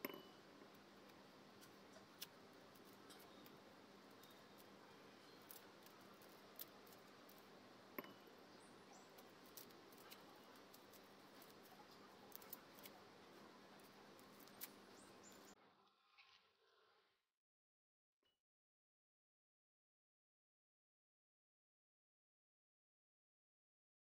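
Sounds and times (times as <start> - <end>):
low steady hiss: 0.0 - 15.6
knife peeling garlic skins: 0.1 - 15.5.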